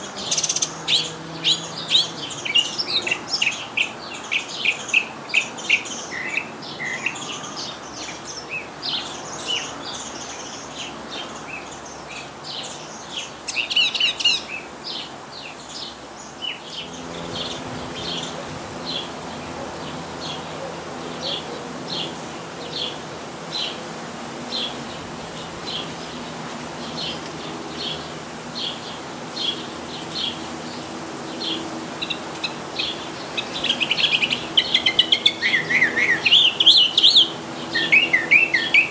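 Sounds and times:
mockingbird singing: 0.0s - 10.1s, 29.4s - 38.9s.

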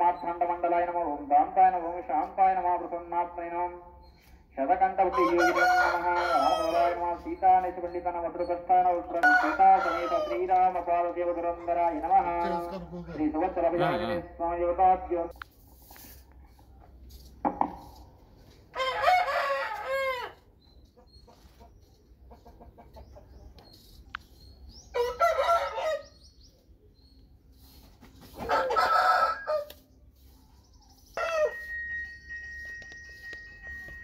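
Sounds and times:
rooster crowing: 5.1s - 7.0s, 9.2s - 10.4s, 18.7s - 20.4s, 25.0s - 26.1s, 28.4s - 29.8s, 31.2s - 31.7s.

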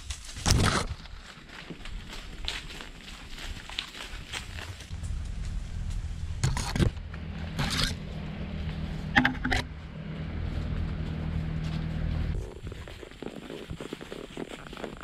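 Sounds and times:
leaves scraping against camera: 0.0s - 15.0s
steady low hum: 4.7s - 14.6s.

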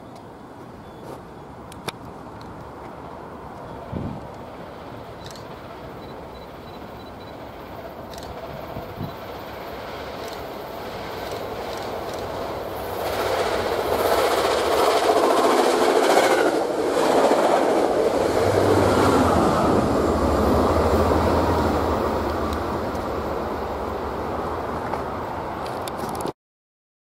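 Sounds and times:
diesel locomotive hum: 0.0s - 26.0s
train wheels clattering over rails: 4.2s - 23.3s.

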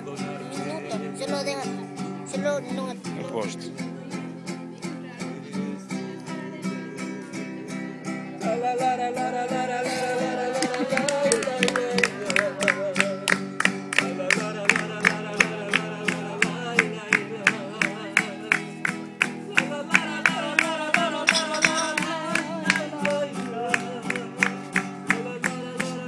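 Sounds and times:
acoustic guitar: 0.0s - 26.0s
person singing: 0.0s - 26.0s
hands clapping to the beat: 9.9s - 26.0s.

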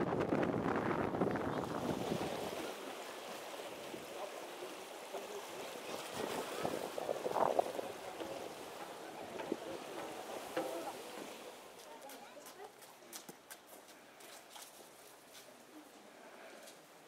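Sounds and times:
wind buffeting microphone: 0.0s - 2.7s, 6.1s - 11.1s
waves washing over rocks: 0.4s - 12.0s
people talking faintly: 2.5s - 14.3s.

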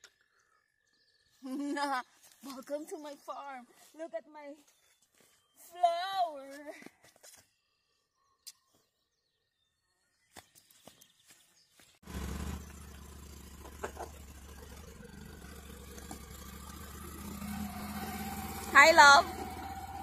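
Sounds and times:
vehicle engine idling: 12.0s - 20.0s.

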